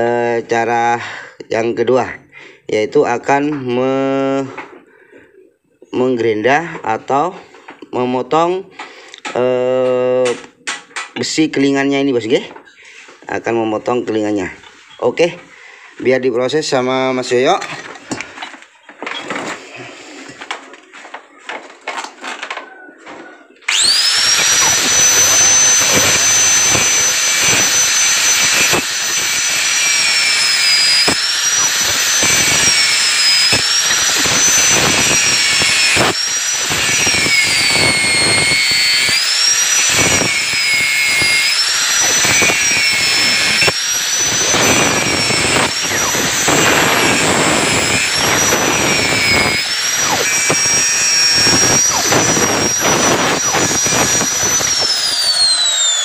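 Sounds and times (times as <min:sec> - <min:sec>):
electric grinder grinding metal: 0:23.7 - 0:56.0.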